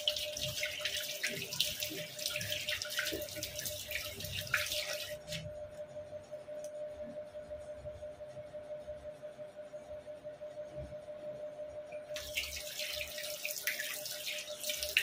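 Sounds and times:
tap water running and splashing: 0:00.0 - 0:05.5, 0:12.2 - 0:15.0.

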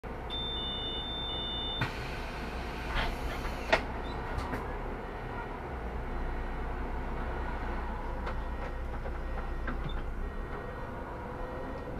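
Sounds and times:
bus engine rumble: 0:00.0 - 0:11.9
clunks: 0:08.2 - 0:10.7.

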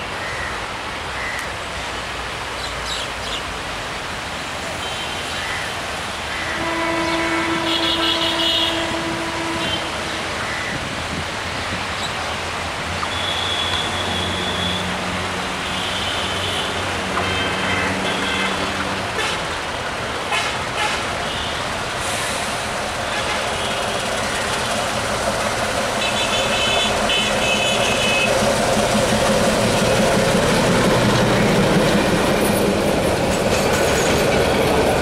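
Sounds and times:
diesel locomotive engine rumble: 0:05.7 - 0:35.0
train horn: 0:06.3 - 0:10.7, 0:13.2 - 0:19.5, 0:26.0 - 0:28.4.

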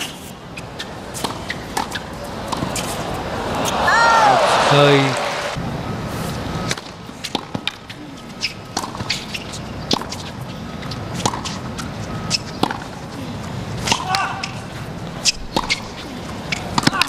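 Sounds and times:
tennis ball bounces: 0:00.0 - 0:03.8, 0:10.8 - 0:11.7, 0:15.5 - 0:17.0
crowd murmur: 0:00.9 - 0:06.1.

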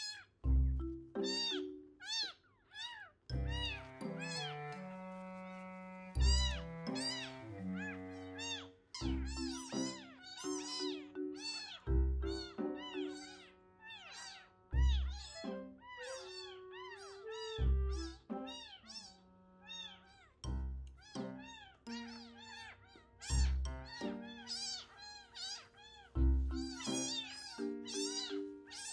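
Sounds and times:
kitten mewing: 0:00.0 - 0:00.4, 0:01.2 - 0:04.5, 0:06.2 - 0:20.4, 0:21.0 - 0:28.9
background music with steady beat: 0:03.3 - 0:13.2, 0:17.3 - 0:18.6, 0:23.2 - 0:24.8, 0:26.2 - 0:28.8.

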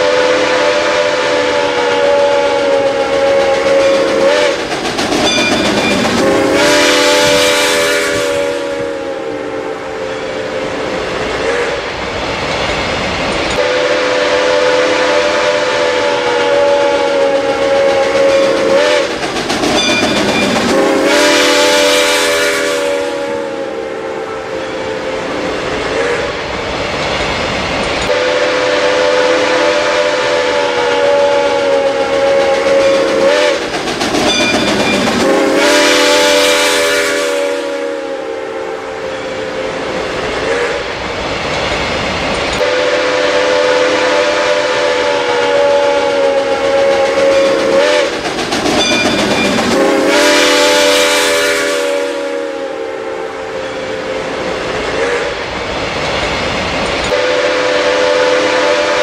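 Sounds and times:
steam locomotive whistle blasts: 0:00.0 - 0:04.6, 0:05.3 - 0:11.8, 0:13.6 - 0:19.2, 0:19.8 - 0:26.3, 0:28.1 - 0:33.6, 0:34.4 - 0:40.8, 0:42.6 - 0:48.2, 0:48.8 - 0:55.4, 0:57.1 - 0:59.0
moving train running: 0:00.0 - 0:59.0
steam hissing: 0:00.9 - 0:23.4.

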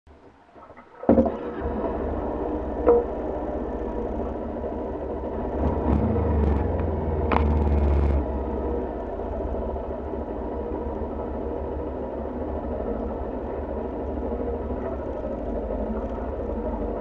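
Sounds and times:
motorcycle engine starting and idling: 0:01.0 - 0:17.0.

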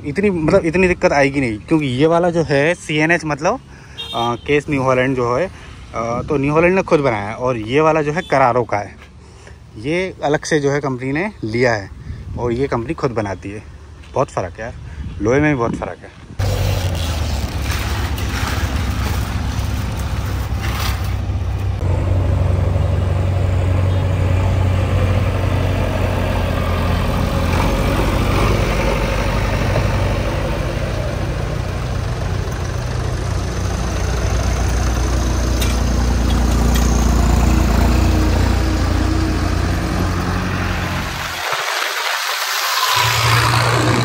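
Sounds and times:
diesel tractor engine idling: 0:21.2 - 0:39.8.

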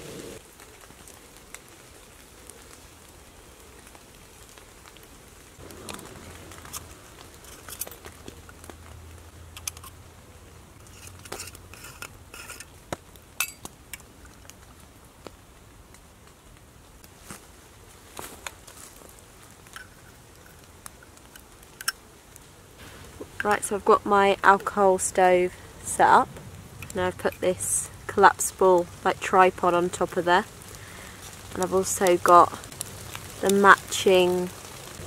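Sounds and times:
metal stove parts clinking: 0:13.4 - 0:13.7.

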